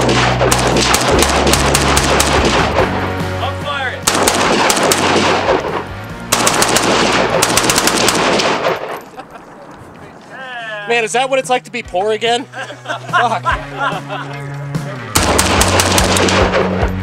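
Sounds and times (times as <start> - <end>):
rapid automatic gunfire: 0.0 - 2.9, 4.0 - 5.7, 6.3 - 8.9, 15.2 - 16.8.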